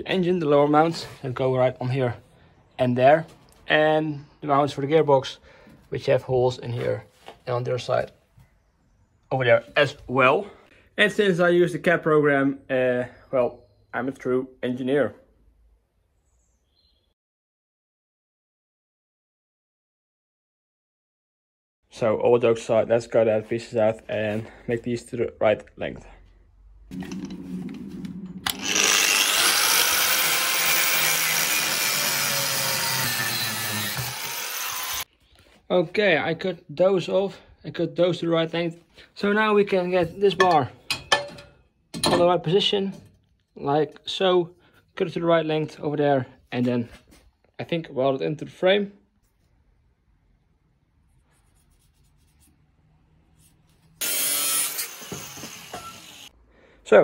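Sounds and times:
angle grinder motor hum: 26.9s - 35.1s, 54.0s - 56.3s
grinder disc cutting steel: 26.9s - 35.1s, 54.0s - 56.3s.

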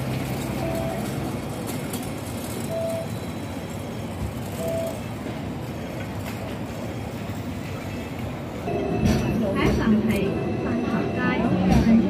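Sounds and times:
tram rumbling: 0.0s - 12.0s
short beeps: 0.6s - 1.1s, 2.6s - 3.2s, 4.6s - 5.0s.

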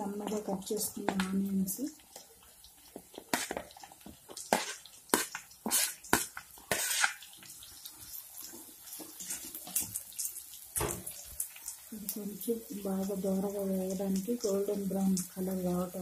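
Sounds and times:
onions sizzling in oil: 0.0s - 16.0s
spatula scraping pan: 4.4s - 7.3s.

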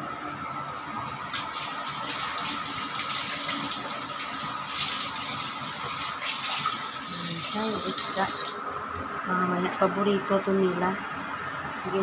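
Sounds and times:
water boiling in a pot: 1.1s - 8.6s.

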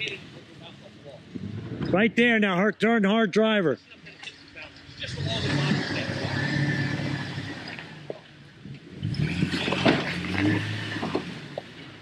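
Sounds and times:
engine pulling under load: 4.3s - 12.0s.

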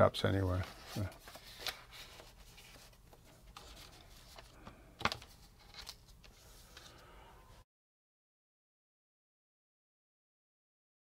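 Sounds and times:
paper and package rustling: 0.5s - 7.1s.

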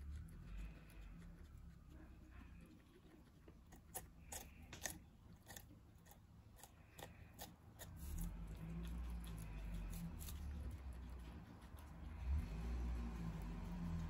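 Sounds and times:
guinea pig crunching pepper: 0.0s - 14.0s
steady low rumble: 8.0s - 14.0s.

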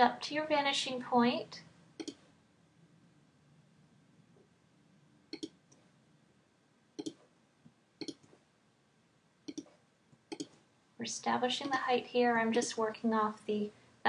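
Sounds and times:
computer mouse clicking: 2.0s - 2.3s, 5.3s - 5.9s, 7.0s - 7.3s, 8.0s - 8.4s, 9.4s - 10.6s.

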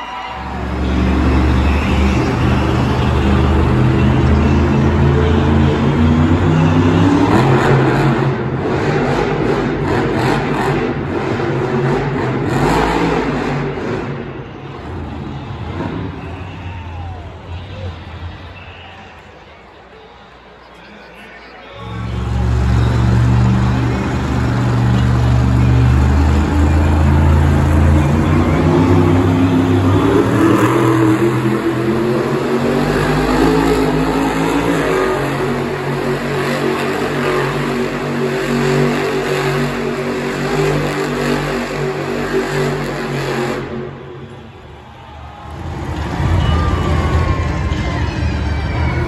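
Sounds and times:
truck engine revving loudly: 0.3s - 16.5s, 21.8s - 44.5s.

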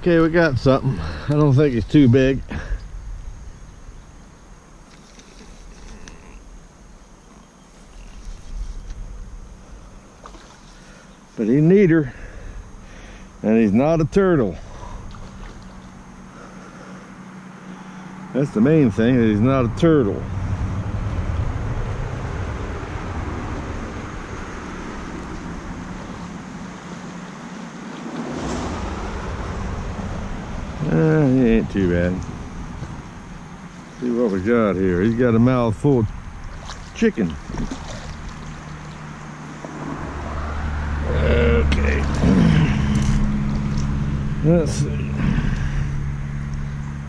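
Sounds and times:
insects buzzing: 0.0s - 47.0s
fish splashing: 9.8s - 11.1s, 14.7s - 17.9s, 36.1s - 41.0s
wind rumble on microphone: 18.9s - 47.0s.

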